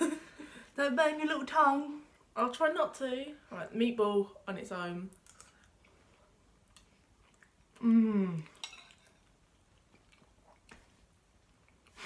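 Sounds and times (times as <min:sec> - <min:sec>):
cutlery clicking against bowls: 0:08.6 - 0:09.1.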